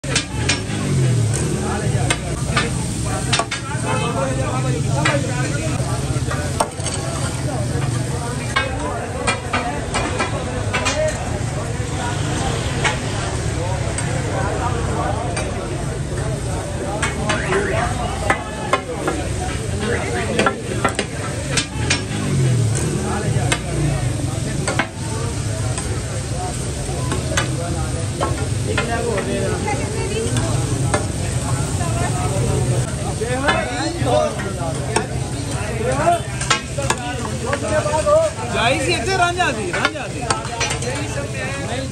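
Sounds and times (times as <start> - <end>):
meat sizzling on a griddle: 0.1 - 8.6, 16.4 - 41.9.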